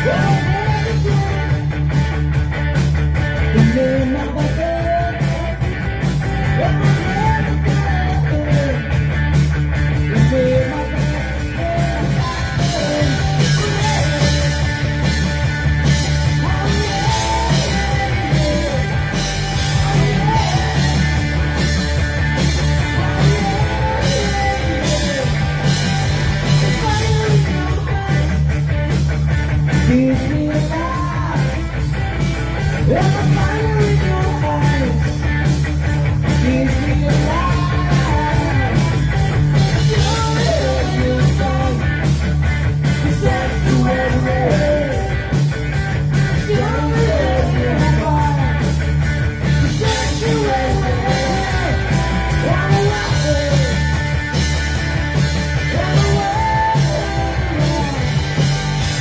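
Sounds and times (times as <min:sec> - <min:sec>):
man singing into a microphone: 0:00.0 - 0:01.7, 0:03.5 - 0:05.6, 0:06.4 - 0:08.9, 0:10.1 - 0:14.8, 0:16.3 - 0:21.2, 0:22.8 - 0:25.7, 0:26.5 - 0:28.5, 0:29.8 - 0:31.6, 0:32.8 - 0:35.1, 0:36.3 - 0:42.0, 0:43.0 - 0:45.5, 0:46.3 - 0:48.8, 0:49.6 - 0:53.9, 0:55.6 - 0:58.3
bass guitar: 0:00.0 - 0:59.0
drums: 0:00.0 - 0:59.0
electric guitar: 0:00.0 - 0:59.0.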